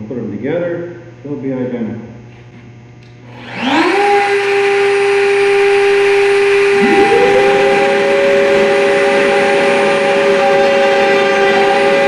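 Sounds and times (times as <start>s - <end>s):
vacuum motor high whine: 3.0s - 12.0s
router motor whine: 3.3s - 12.0s.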